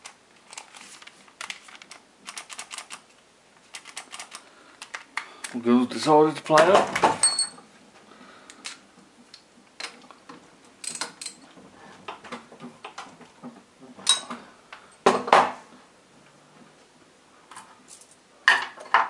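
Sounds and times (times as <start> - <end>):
metal parts and tools clinking: 7.2 - 7.6, 10.8 - 11.4.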